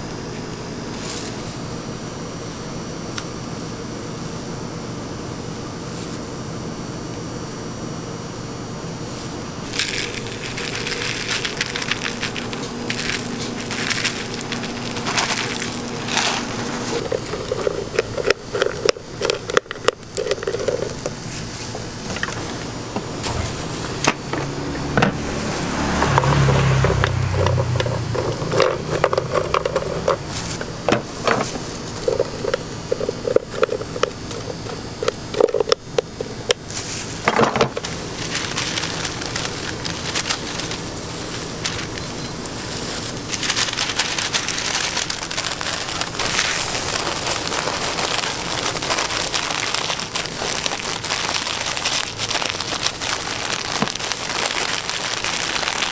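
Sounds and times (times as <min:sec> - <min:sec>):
candy pieces clicking and crackling: 0:09.6 - 0:22.6, 0:26.1 - 0:55.9.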